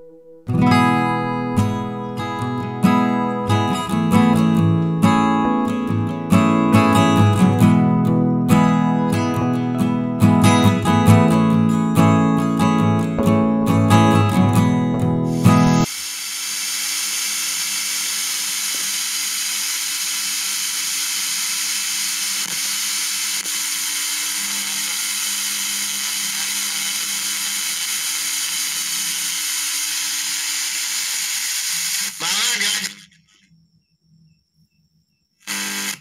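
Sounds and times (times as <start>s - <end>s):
guitar music from radio speaker: 0.0s - 15.9s
radio static hiss: 31.8s - 33.4s.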